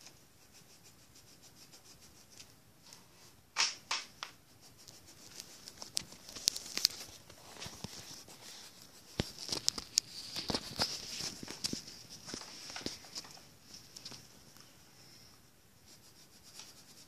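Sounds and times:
pencil scratching on paper: 0:00.0 - 0:02.4, 0:04.5 - 0:12.1, 0:15.8 - 0:17.0
paper rustling: 0:04.9 - 0:14.3.

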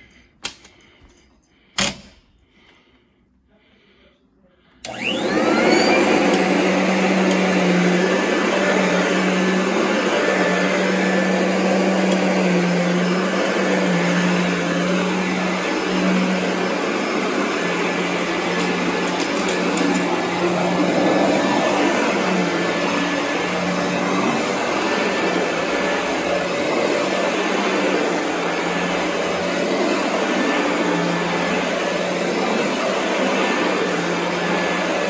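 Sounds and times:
vacuum cleaner motor humming: 0:04.8 - 0:35.0.

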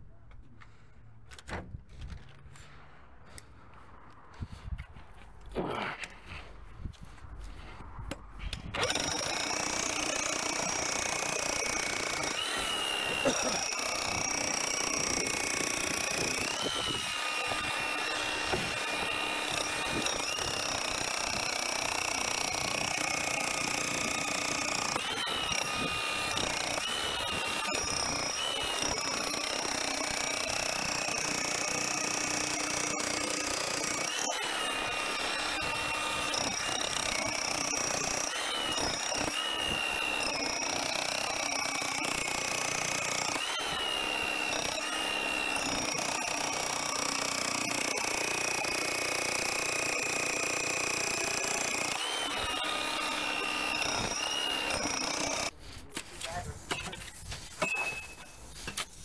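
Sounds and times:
power tool motor whining: 0:08.5 - 0:55.6.

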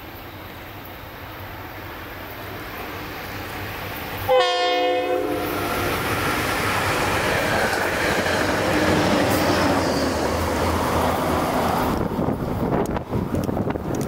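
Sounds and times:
train rumbling past: 0:00.0 - 0:14.0
diesel locomotive horn chord: 0:04.3 - 0:06.0
wheels on rails: 0:05.5 - 0:14.0.

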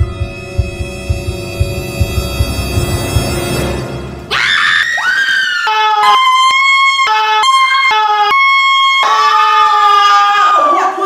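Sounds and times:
horror music drone: 0:00.0 - 0:05.8
woman screaming: 0:04.3 - 0:11.0.

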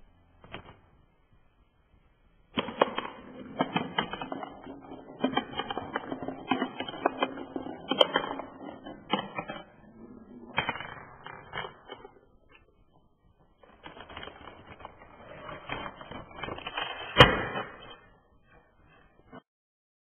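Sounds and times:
ball clattering down a ramp: 0:02.5 - 0:12.3.

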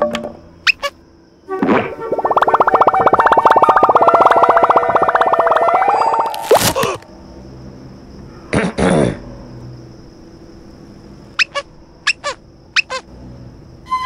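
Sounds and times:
whistle-like chirps sliding down: 0:01.6 - 0:07.0.

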